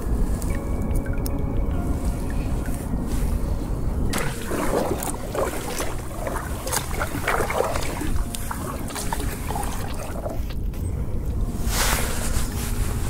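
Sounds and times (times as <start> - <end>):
wind rumble on microphone: 0.0 - 13.0
kayak paddle splashing in water: 4.1 - 10.5.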